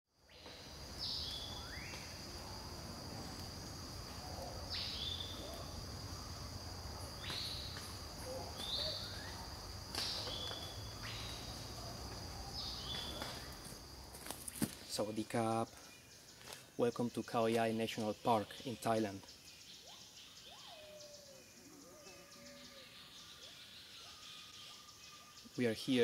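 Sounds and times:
high insect drone: 0.2 - 26.0
descending bird call: 4.0 - 13.7, 15.0 - 26.0.

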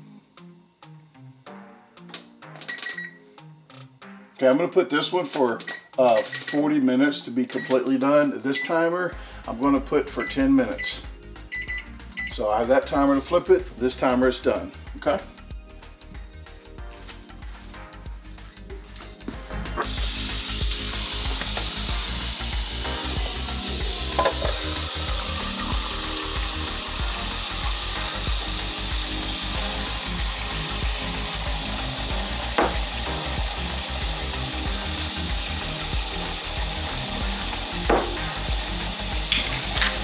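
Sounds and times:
faucet water filling a pot: 19.7 - 40.0.

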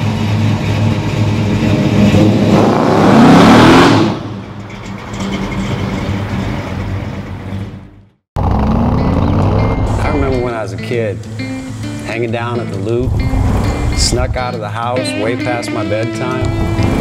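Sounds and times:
car engine revving: 0.0 - 10.5, 12.8 - 14.4, 16.4 - 17.0.

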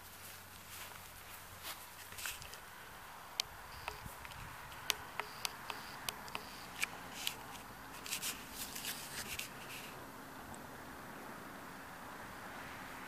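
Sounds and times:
footsteps crunching on dry grass: 0.0 - 2.6, 7.1 - 10.0.

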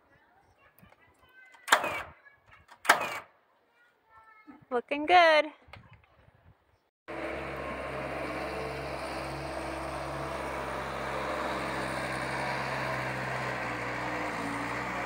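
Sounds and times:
diesel engine running: 7.1 - 15.0.

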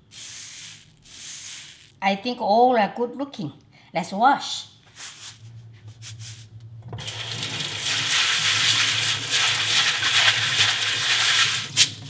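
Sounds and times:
faucet water running onto beans: 0.0 - 2.0, 7.0 - 12.0.

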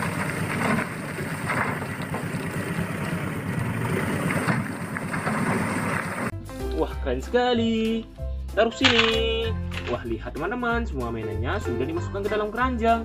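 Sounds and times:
dump truck engine running: 0.0 - 6.3.

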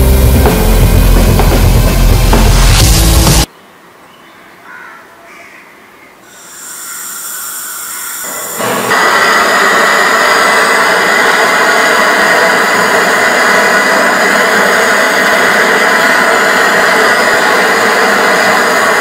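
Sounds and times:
gas torch flame hissing: 6.3 - 19.0.

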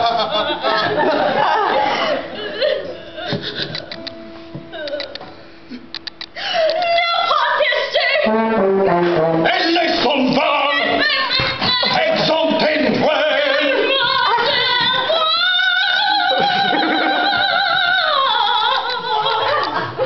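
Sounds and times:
woman singing operatically: 6.6 - 8.4, 10.3 - 20.0.

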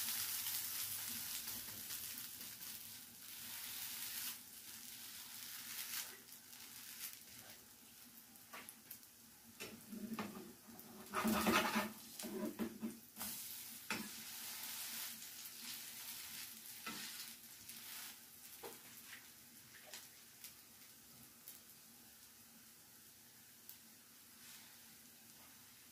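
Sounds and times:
pancakes sizzling in frying pan: 0.0 - 25.9
spatula scraping pan: 10.0 - 18.2
spatula tapping pan: 13.9 - 14.2.

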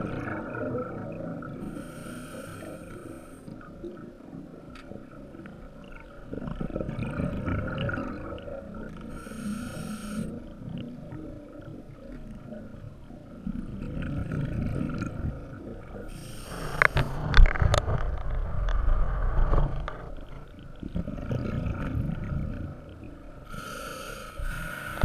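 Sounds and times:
exhaled bubbles rumbling underwater: 0.0 - 25.0
hissing regulator inhalation: 1.6 - 3.4, 9.1 - 10.4, 16.1 - 17.1, 23.5 - 25.0.

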